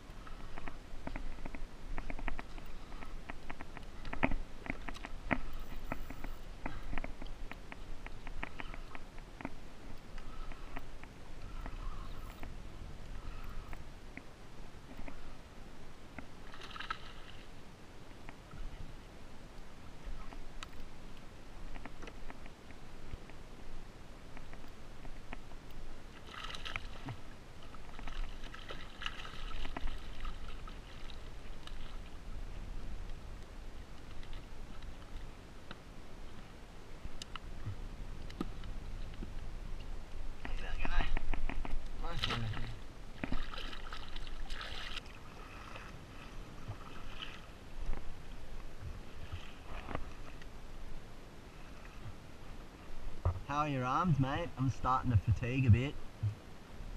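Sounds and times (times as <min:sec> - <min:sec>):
water splashing against kayak: 0:00.1 - 0:15.5, 0:16.1 - 0:18.9, 0:24.3 - 0:50.7.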